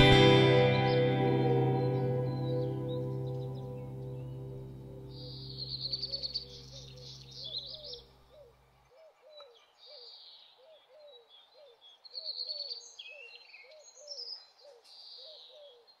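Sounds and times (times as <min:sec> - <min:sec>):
held low music chord: 0:00.0 - 0:07.5
low bird call: 0:00.0 - 0:10.0
birds chirping and trilling: 0:00.0 - 0:16.0.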